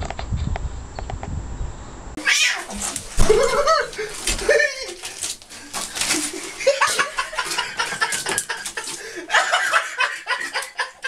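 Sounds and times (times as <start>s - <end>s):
person laughing in choppy bursts: 3.1s - 5.1s, 6.1s - 11.0s.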